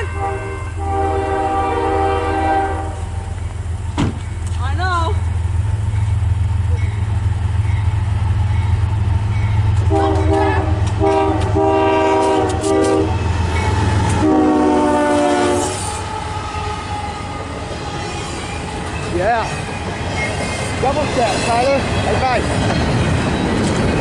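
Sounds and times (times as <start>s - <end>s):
locomotive air horn blasts: 0.0s - 3.3s, 9.8s - 13.2s, 14.0s - 17.5s
low rumble of passing train: 0.0s - 24.0s.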